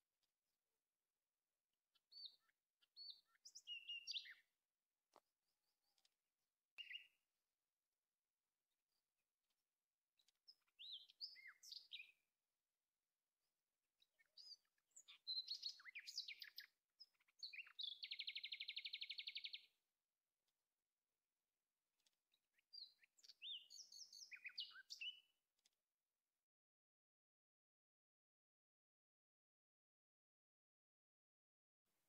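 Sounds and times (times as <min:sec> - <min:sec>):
songbird singing: 0:01.9 - 0:07.4, 0:08.7 - 0:12.4, 0:13.8 - 0:19.8, 0:22.0 - 0:25.7
bird trill: 0:02.0 - 0:04.5, 0:06.8 - 0:07.2, 0:10.5 - 0:12.2, 0:14.0 - 0:19.7, 0:22.6 - 0:25.3.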